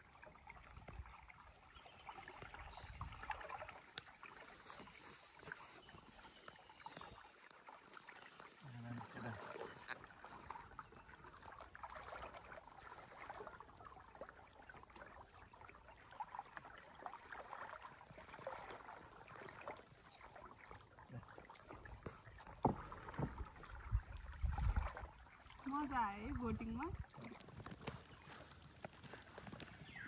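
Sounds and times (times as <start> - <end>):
water lapping against canoe hull: 0.0 - 30.0
low knocks on canoe: 21.9 - 25.0.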